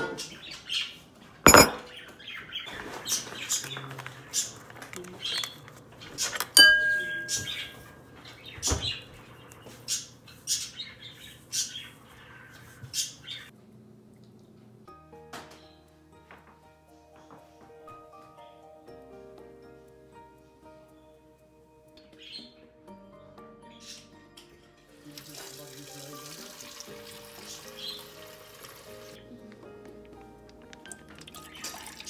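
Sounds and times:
metal spoon scraping ceramic bowl: 1.5s - 1.8s.

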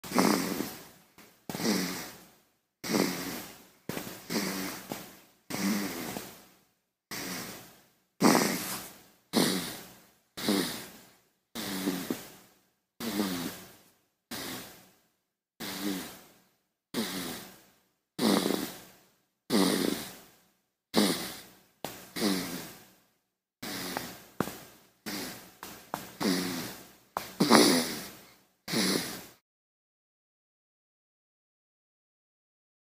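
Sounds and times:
baby snoring: 0.0s - 0.9s, 1.5s - 6.4s, 7.1s - 12.4s, 13.0s - 14.8s, 15.6s - 16.3s, 16.9s - 18.9s, 19.5s - 20.3s, 20.9s - 22.8s, 23.6s - 29.4s.

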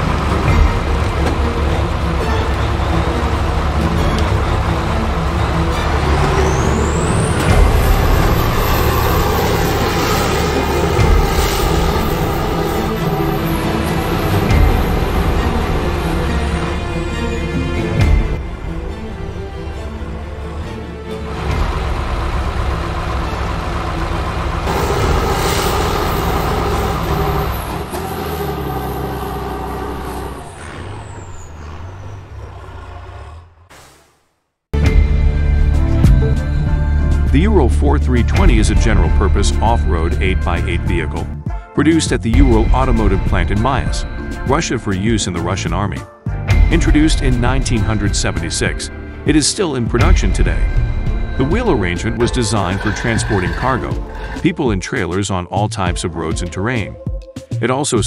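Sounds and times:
vehicle engine running: 0.0s - 33.7s, 50.0s - 54.5s.

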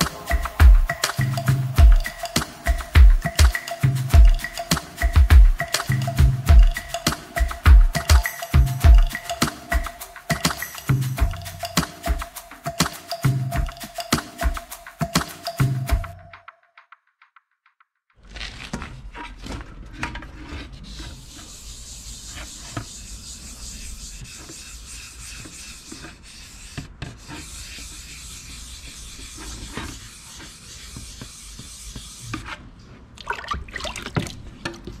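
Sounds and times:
wet sandpaper rubbing: 20.5s - 32.7s
water sloshing: 33.2s - 34.9s.

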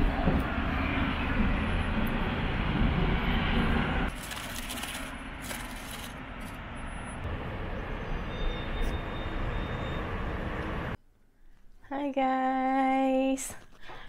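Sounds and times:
city traffic rumble: 0.0s - 11.0s.

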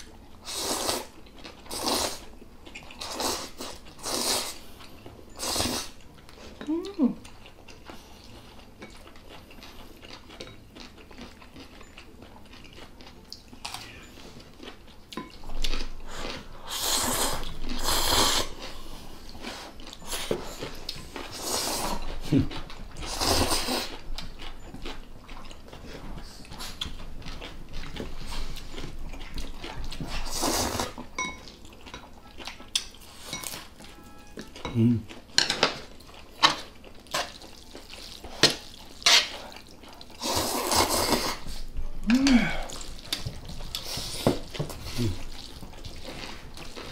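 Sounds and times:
slurping noodles: 1.7s - 2.3s, 3.0s - 4.6s, 16.1s - 18.6s, 30.1s - 31.0s, 39.2s - 41.6s
utensils clinking on bowls: 31.1s - 39.4s.

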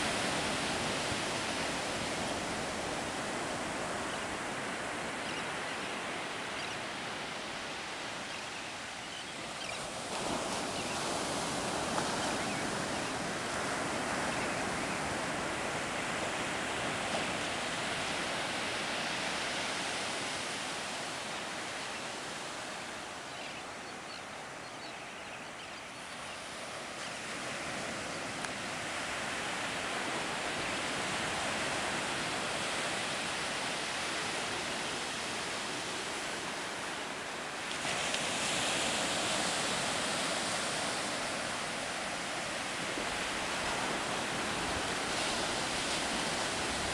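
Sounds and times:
ocean surf breaking on beach: 0.0s - 46.9s.

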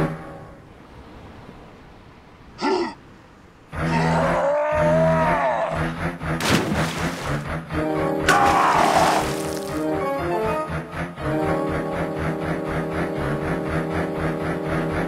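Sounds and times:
vocal grunt: 2.6s - 3.0s, 8.3s - 9.4s
loud cartoon yell: 3.8s - 5.8s, 8.3s - 9.3s
background music: 6.8s - 15.0s.

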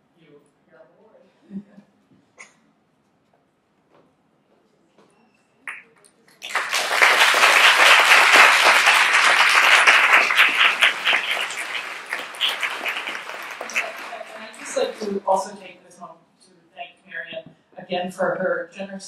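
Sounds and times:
audience applauding: 5.7s - 15.5s.

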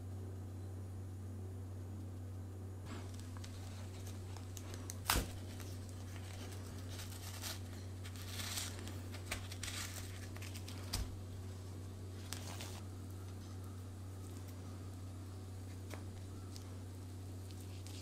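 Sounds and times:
steady low hum: 0.0s - 18.0s
paper crinkling and tearing: 2.9s - 13.6s, 17.4s - 18.0s.

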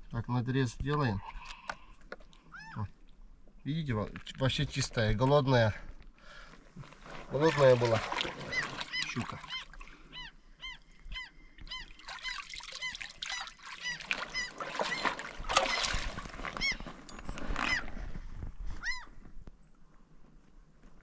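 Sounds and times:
bird calling: 7.4s - 17.9s, 18.8s - 19.2s.

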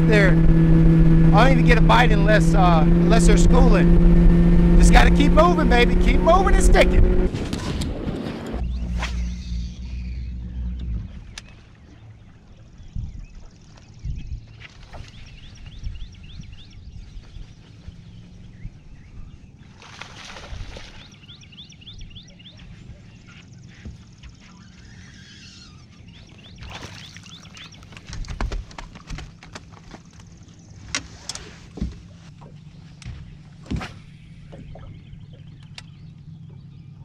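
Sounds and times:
low steady hum: 0.0s - 28.3s
birds chirping: 0.0s - 37.0s
fish splashing in water: 19.7s - 21.2s, 26.6s - 30.1s.

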